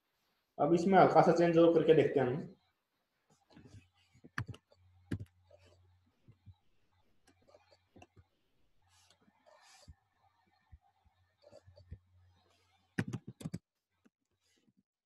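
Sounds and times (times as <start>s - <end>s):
keyboard and mouse clicking: 13.0s - 13.6s.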